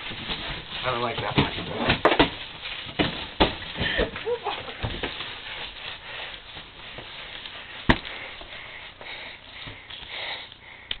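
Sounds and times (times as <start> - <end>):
rustling near microphone: 0.0 - 10.8.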